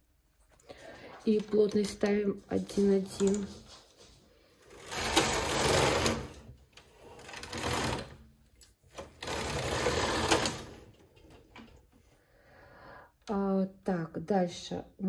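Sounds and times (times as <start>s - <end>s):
knitting machine carriage whirring: 4.5s - 11.8s.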